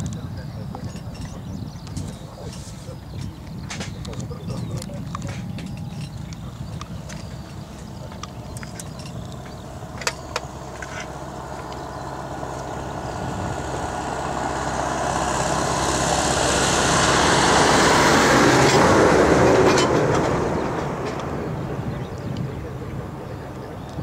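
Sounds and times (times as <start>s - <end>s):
jet airliner engines: 0.0s - 24.0s.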